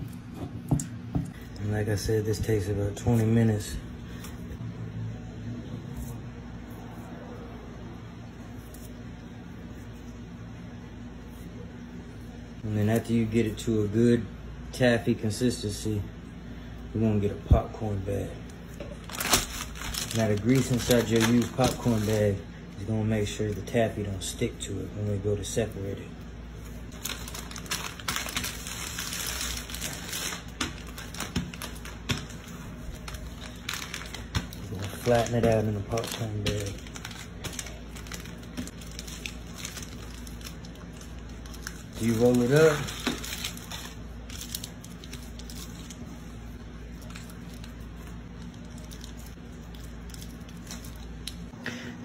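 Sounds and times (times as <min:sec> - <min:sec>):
steady low hum: 0:00.0 - 0:52.0
paper bag crinkling: 0:19.0 - 0:22.4, 0:26.9 - 0:46.2.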